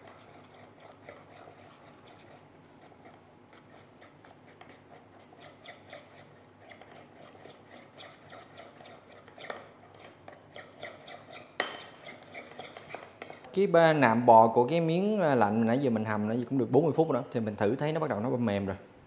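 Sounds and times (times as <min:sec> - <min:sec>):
spoon scraping sticky sauce: 0:00.0 - 0:13.6.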